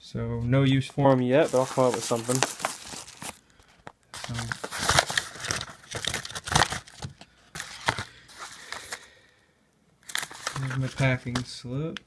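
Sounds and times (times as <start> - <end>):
envelope crinkling and rustling: 1.0 - 9.1, 10.0 - 11.5.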